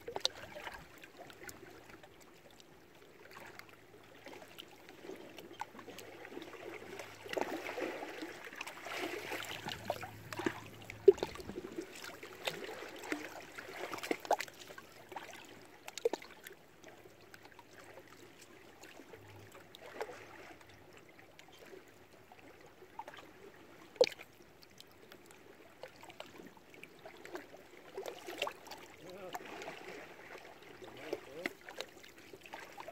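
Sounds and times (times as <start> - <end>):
waves splashing against rocks: 7.5 - 14.4.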